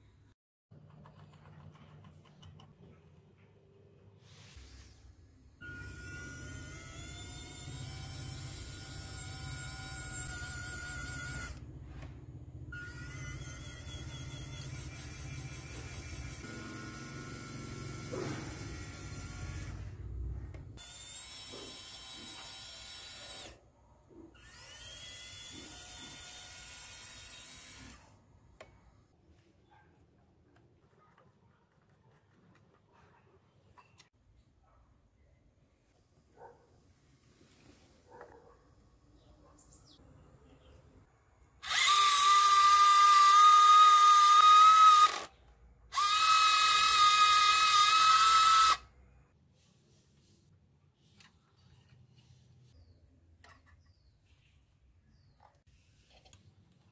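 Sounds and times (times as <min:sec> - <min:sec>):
small electric motor whining: 0:05.6 - 0:12.0, 0:12.7 - 0:20.0, 0:20.8 - 0:23.6, 0:24.4 - 0:28.2, 0:41.6 - 0:48.9
electric motor whining: 0:05.7 - 0:11.7, 0:41.6 - 0:45.3.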